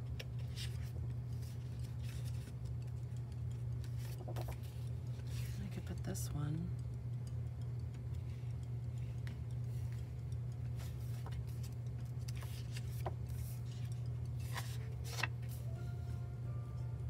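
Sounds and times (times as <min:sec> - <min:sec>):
steady low hum: 0:00.0 - 0:17.0
paper pages rustling and turning: 0:00.2 - 0:02.6, 0:03.8 - 0:05.6, 0:10.8 - 0:15.6.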